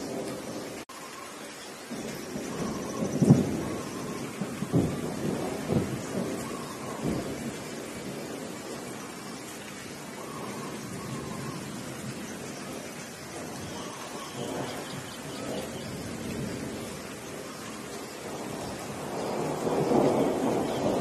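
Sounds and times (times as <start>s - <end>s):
thunder rumbling: 0.0s - 0.8s, 1.9s - 21.0s
steady rain: 0.0s - 21.0s.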